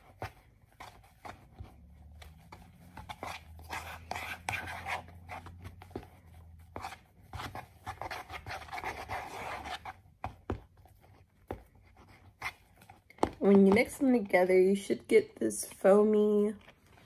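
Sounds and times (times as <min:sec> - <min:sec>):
utensil scraping plastic bowl: 0:00.0 - 0:10.0.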